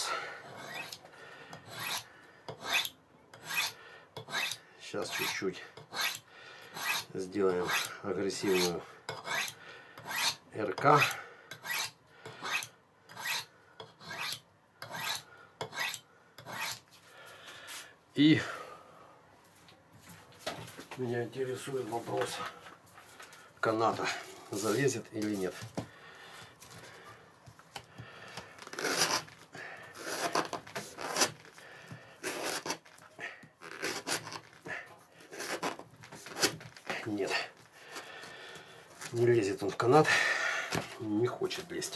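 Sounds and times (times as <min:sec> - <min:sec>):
knife strokes on sharpening rod: 0:00.5 - 0:01.0, 0:01.7 - 0:06.2, 0:08.5 - 0:10.4, 0:11.0 - 0:16.8.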